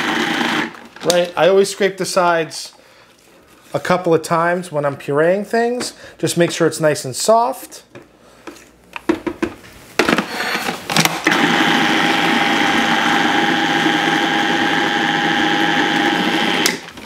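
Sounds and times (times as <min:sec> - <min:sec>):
food processor motor whining: 0:00.0 - 0:00.8, 0:10.4 - 0:17.0.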